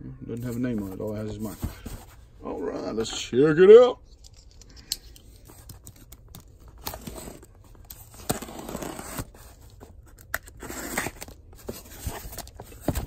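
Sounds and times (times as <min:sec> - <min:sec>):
packing tape being cut and torn: 0:10.0 - 0:11.4.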